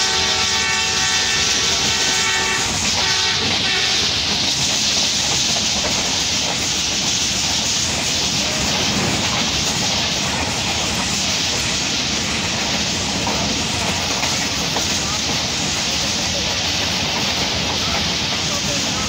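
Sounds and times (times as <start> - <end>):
locomotive horn blasts: 0.0 - 4.2
train wheel and rail noise: 0.0 - 19.0
wind through train window: 0.0 - 19.0.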